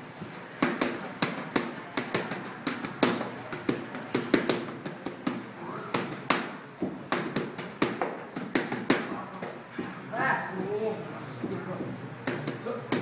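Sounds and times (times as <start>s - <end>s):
boxing gloves smacking focus mitts: 0.6s - 9.6s.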